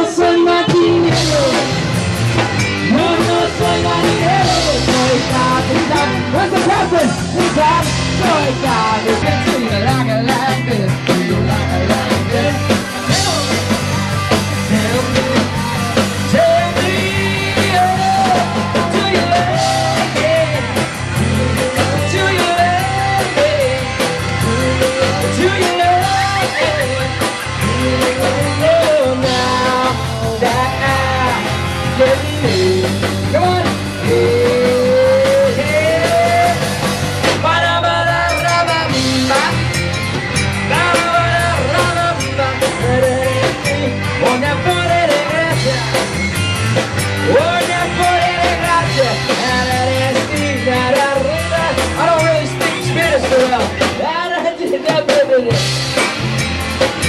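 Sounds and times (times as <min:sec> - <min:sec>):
lead singer singing: 0:00.0 - 0:56.1
drum kit: 0:00.0 - 0:57.0
electric guitar: 0:00.0 - 0:57.0
keyboard: 0:00.0 - 0:57.0
live rock band: 0:00.0 - 0:57.0.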